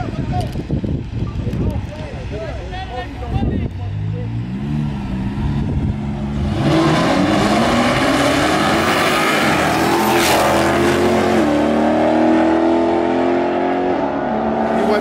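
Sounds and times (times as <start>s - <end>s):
cars accelerating hard: 4.0s - 15.0s.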